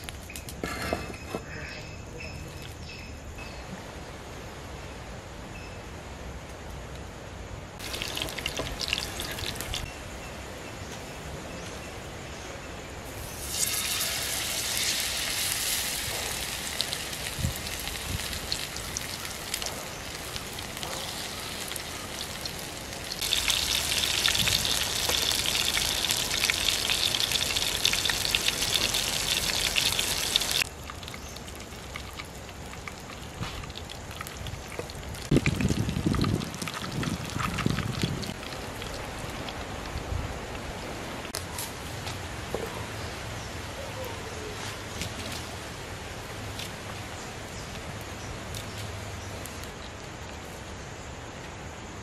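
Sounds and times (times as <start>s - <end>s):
fish sizzling in hot oil: 7.8s - 9.9s, 13.1s - 39.3s.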